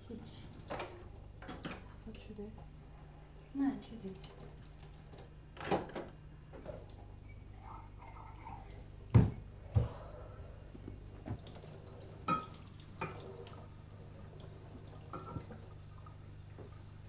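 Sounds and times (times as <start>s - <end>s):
low steady hum: 0.0s - 17.0s
water dripping and splashing: 3.4s - 5.4s, 11.2s - 17.0s
dishes and glasses clinking: 12.3s - 13.3s.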